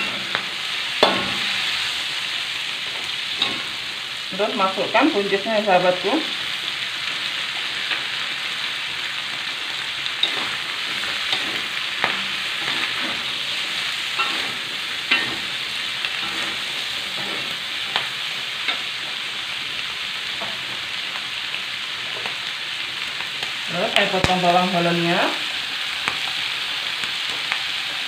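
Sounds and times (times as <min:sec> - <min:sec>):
food sizzling in a wok: 0:00.0 - 0:28.0
metal spatula scraping a pan: 0:10.1 - 0:19.1.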